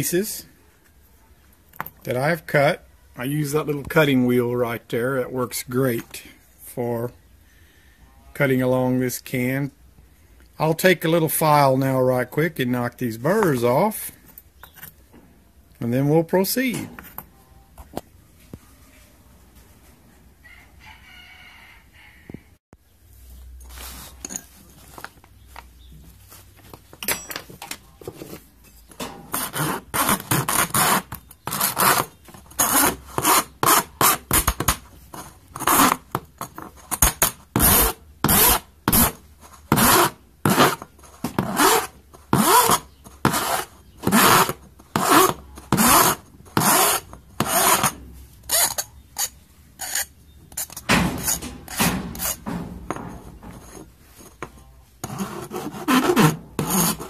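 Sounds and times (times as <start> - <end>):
hand file rasping on metal: 29.3 - 34.3, 41.4 - 53.0, 55.0 - 57.0.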